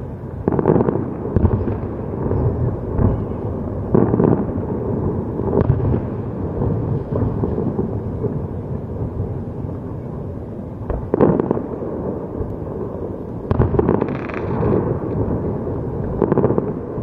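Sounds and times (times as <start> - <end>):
distant fireworks booming: 0.0 - 17.0
sharp firework bang: 13.5 - 14.9.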